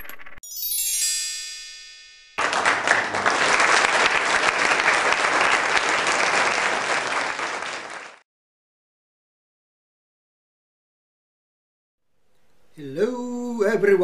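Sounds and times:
crowd applauding: 2.4 - 8.2.

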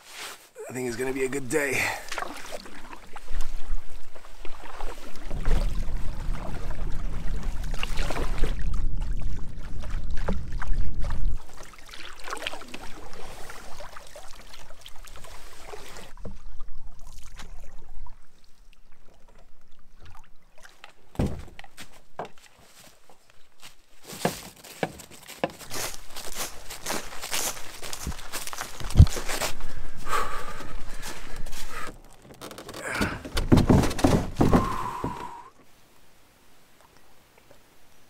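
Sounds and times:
water splashes: 0.9 - 21.8
paddle strokes in water: 1.9 - 35.5.

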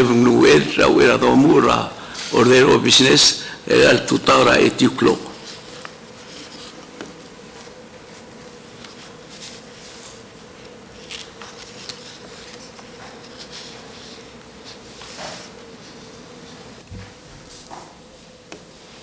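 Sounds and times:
even hiss: 0.0 - 19.0
steady hum: 0.0 - 19.0
faint rustles and ticks: 5.4 - 17.8.

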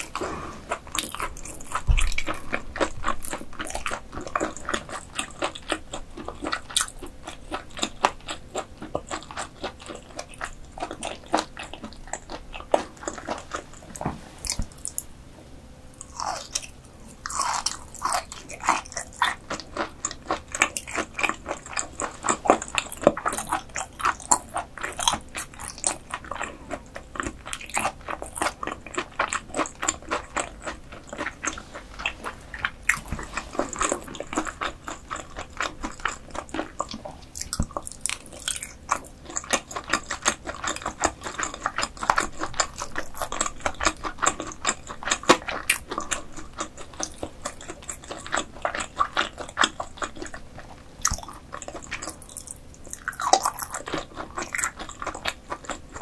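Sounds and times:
wet chewing mouth clicks: 0.0 - 15.1, 16.0 - 56.0.

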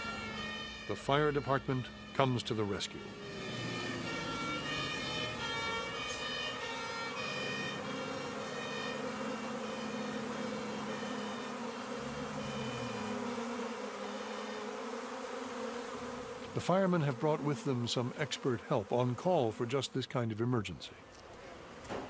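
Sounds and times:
emergency siren: 0.0 - 13.2
bee swarm buzzing: 0.0 - 19.9.

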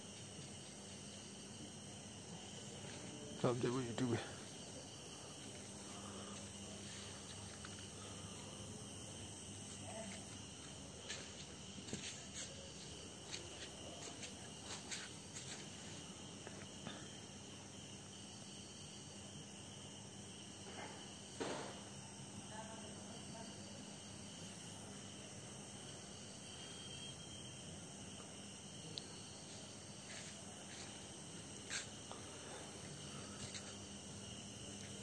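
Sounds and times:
crickets chirring: 0.0 - 35.0.

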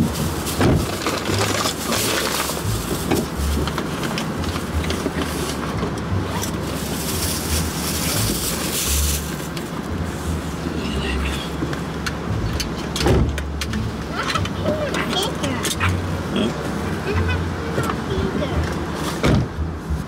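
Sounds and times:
rustling: 0.0 - 5.7, 6.3 - 10.7
low rumble in car cabin: 0.0 - 20.0.

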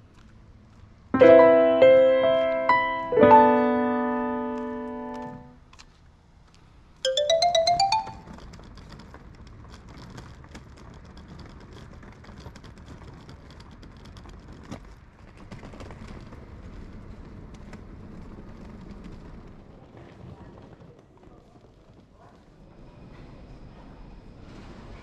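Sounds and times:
rising chime jingle: 7.1 - 8.3.

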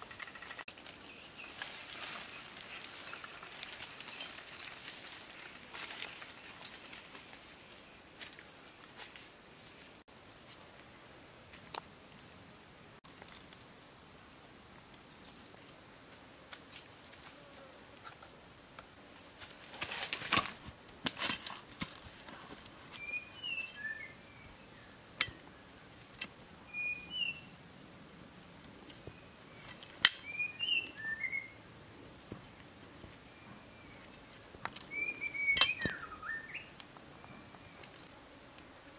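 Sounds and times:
bird chirps: 22.4 - 25.8, 26.7 - 27.5, 29.0 - 31.6, 34.8 - 37.9.

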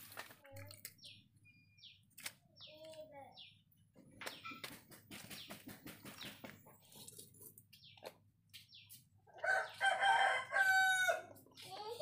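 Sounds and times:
chickens clucking: 4.0 - 12.0.

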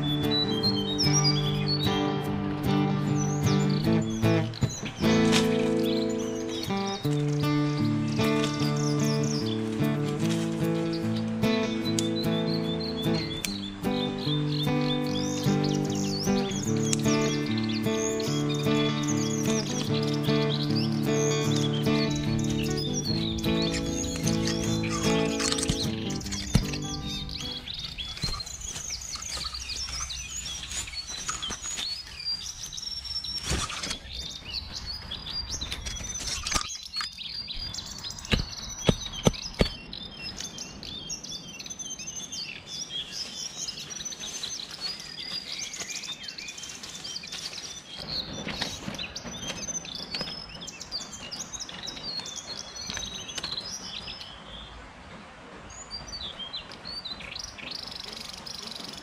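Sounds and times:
small birds chirping: 0.0 - 59.0
sharp knocks: 23.4 - 27.6, 38.2 - 39.8.

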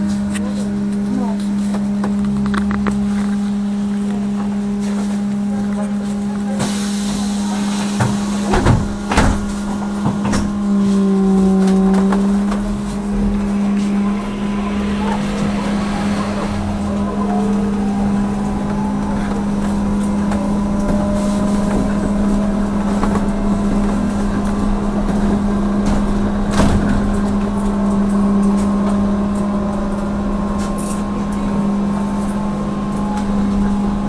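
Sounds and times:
trolleybus electric motor whine: 0.0 - 34.0
low hum: 9.4 - 34.0.

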